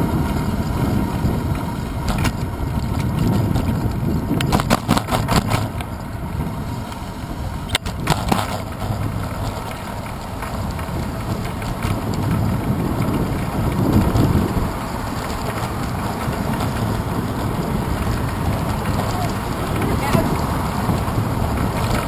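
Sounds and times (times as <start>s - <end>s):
road vibration: 0.0s - 22.0s
wind rumble: 0.0s - 22.0s
sharp rattling knocks: 2.0s - 6.0s.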